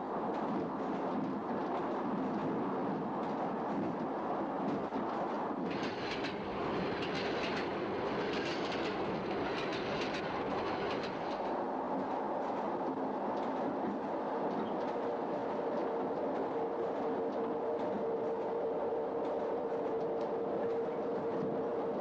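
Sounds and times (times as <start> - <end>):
train rumbling: 0.0 - 22.0
wheels clattering over rail joints: 5.7 - 11.6.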